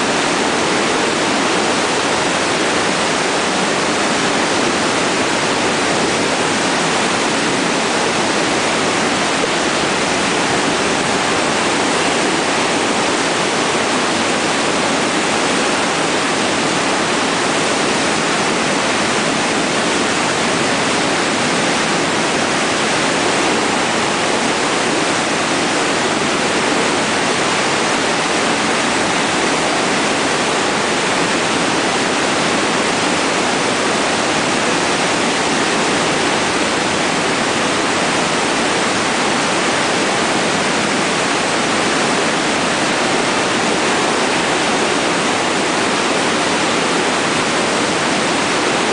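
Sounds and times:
river rapids rushing: 0.0 - 48.9.

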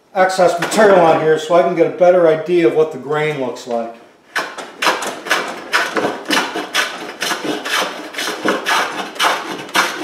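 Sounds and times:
hand plane strokes on wood: 4.4 - 10.0.

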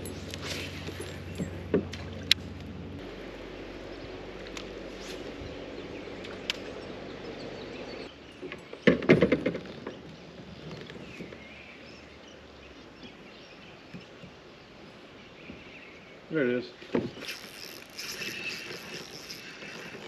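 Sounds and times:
outdoor background noise: 0.0 - 20.0
faint birdsong: 3.0 - 9.0, 9.6 - 20.0
fishing gear knocks and clicks: 17.0 - 20.0.

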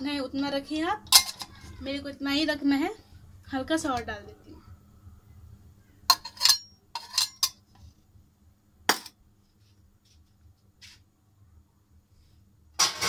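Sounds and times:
metal container clinking on pan: 1.1 - 1.5, 6.1 - 7.6.

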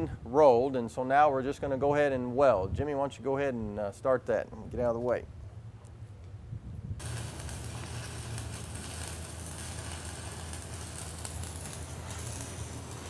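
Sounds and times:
welding arc crackling hiss: 7.0 - 13.0.

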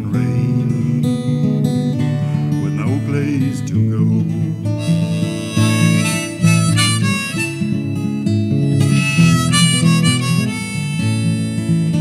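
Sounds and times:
strummed acoustic guitar: 0.0 - 12.0
harmonica melody: 4.6 - 12.0.

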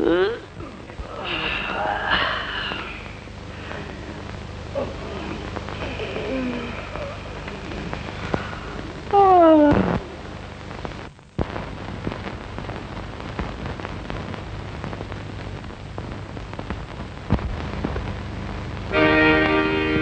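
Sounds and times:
film soundtrack crackle and hiss: 0.0 - 20.0
low hum: 0.0 - 20.0
music with held notes: 18.9 - 20.0.

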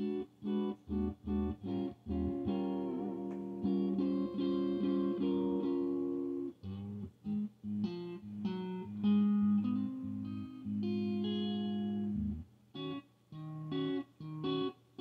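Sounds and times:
electric guitar chords: 0.0 - 15.0
looped bass line: 0.9 - 4.0.

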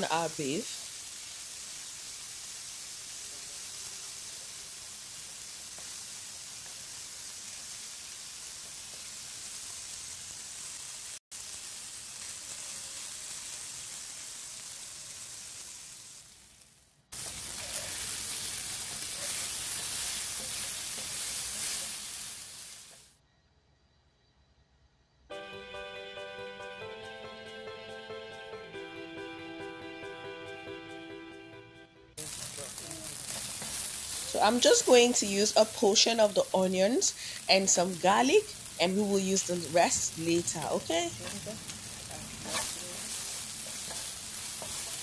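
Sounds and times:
beef sizzling in a frying pan: 0.0 - 23.2, 32.2 - 45.0.

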